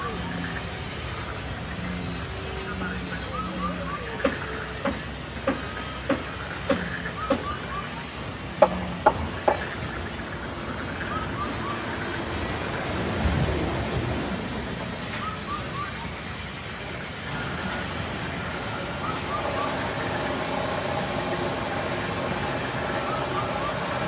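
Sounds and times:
sharp knocks: 8.6s - 9.8s.

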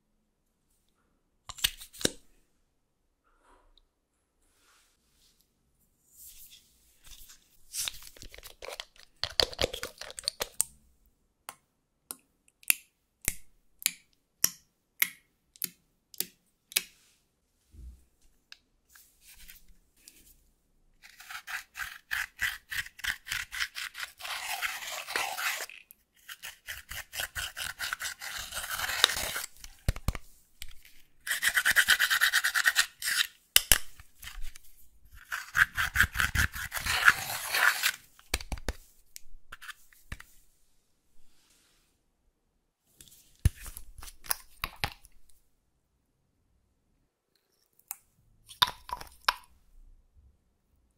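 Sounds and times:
metal tool scraping powder: 21.0s - 29.8s, 30.6s - 33.4s, 34.2s - 38.0s
small bottle clicks and taps: 48.5s - 49.5s.

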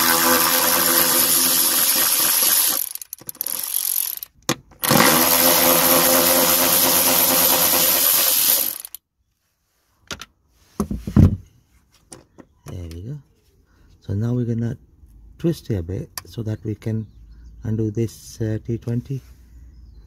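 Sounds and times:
cordless power tool motor running: 0.0s - 9.0s.

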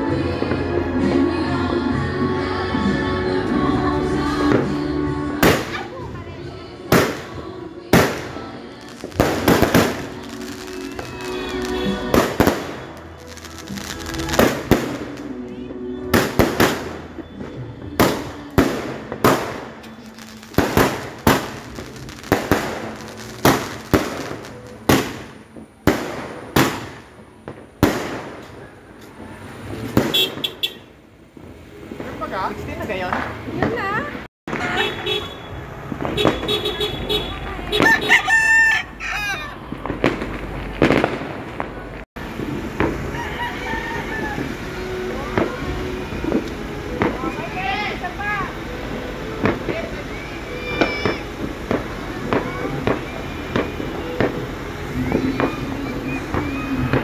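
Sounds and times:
fireworks bangs: 4.3s - 38.2s, 39.6s - 57.0s
rooster crowing: 37.8s - 39.7s, 43.0s - 44.6s.

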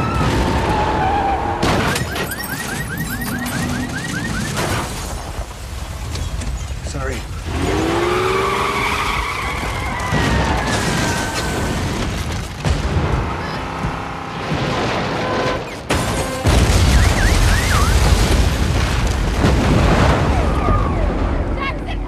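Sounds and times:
car tyres squealing: 0.0s - 4.6s, 7.4s - 11.8s.

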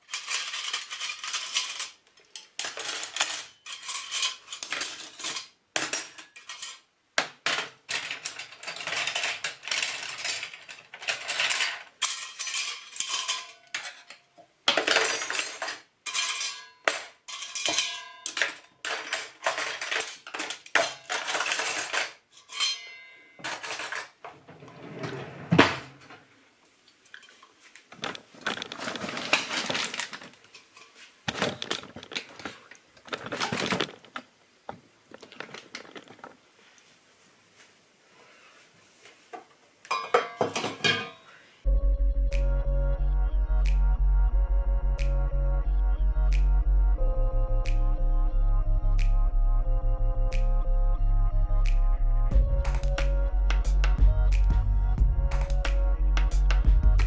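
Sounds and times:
metal cutlery clattering: 0.0s - 24.2s, 27.0s - 34.1s, 39.9s - 41.3s.

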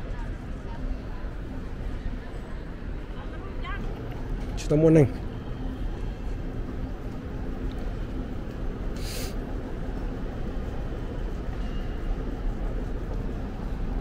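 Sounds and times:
brief hiss: 9.0s - 9.4s.

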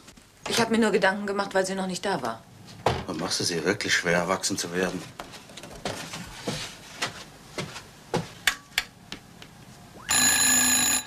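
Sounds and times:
footsteps on wooden stairs: 5.1s - 8.4s.

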